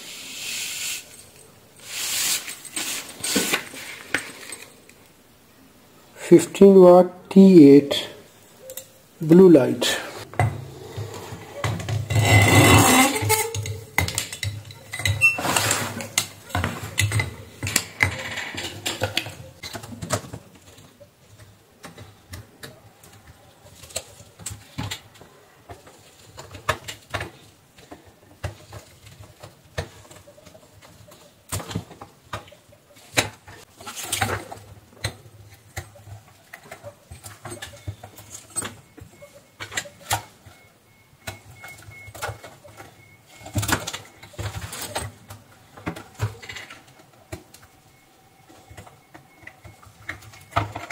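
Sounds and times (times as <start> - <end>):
scraping and rattling: 10.3 - 19.6
parts clicking and rattling: 10.3 - 50.9.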